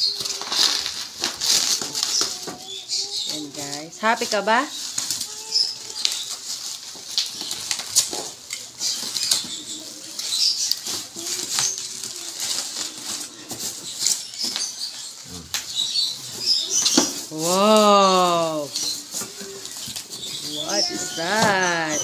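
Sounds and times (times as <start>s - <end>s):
plastic bag and bubble wrap crinkling: 0.0s - 22.0s.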